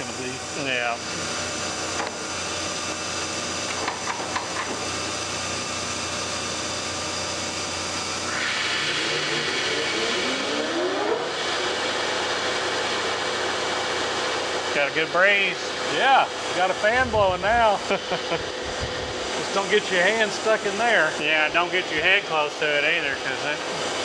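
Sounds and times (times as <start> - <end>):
lathe spindle spinning: 0.0 - 14.8
machine hum: 0.0 - 24.0
whine climbing in pitch: 8.2 - 11.7.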